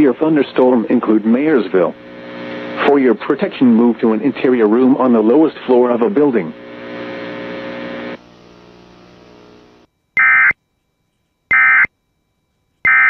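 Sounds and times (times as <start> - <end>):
steady buzzing hum: 0.0 - 13.0
screeching alert data tones: 10.2 - 10.6, 11.5 - 11.9.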